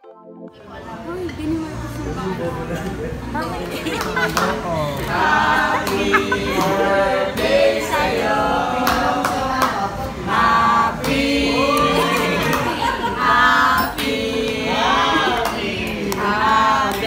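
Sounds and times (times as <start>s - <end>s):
group singing: 3.6s - 17.0s
hand claps: 5.8s - 6.8s.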